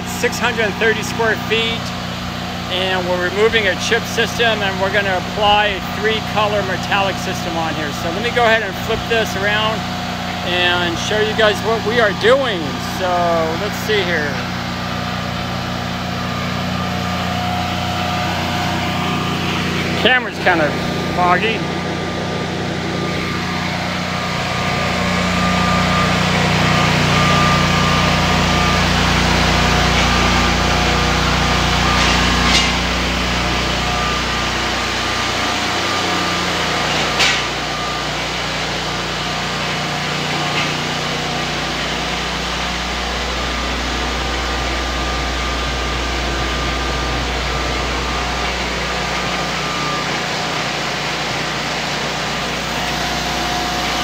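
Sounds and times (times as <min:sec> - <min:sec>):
concrete floor grinder droning: 0:00.0 - 0:54.0.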